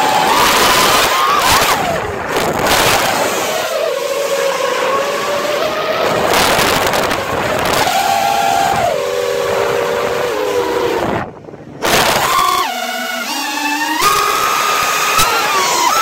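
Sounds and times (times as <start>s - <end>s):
drone motors whining: 0.0s - 16.0s
wind noise on microphone: 0.0s - 16.0s.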